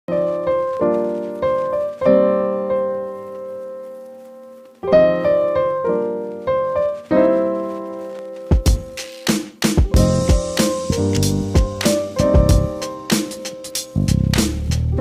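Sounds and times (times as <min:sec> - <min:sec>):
piano chords: 0:00.1 - 0:15.0
drum beat: 0:08.5 - 0:14.8.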